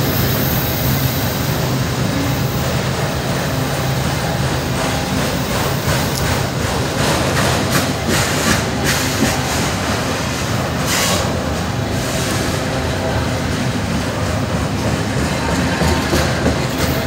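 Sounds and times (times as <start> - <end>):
train wheels rumbling on rail: 0.0 - 17.0
wheels clacking over rail joints: 3.9 - 11.8, 13.6 - 17.0.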